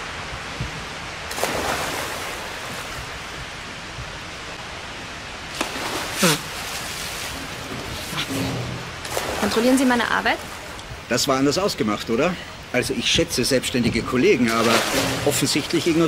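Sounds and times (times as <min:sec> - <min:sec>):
pool water noise: 0:00.0 - 0:16.0
water splash: 0:01.2 - 0:03.4, 0:05.5 - 0:11.0, 0:14.4 - 0:16.0.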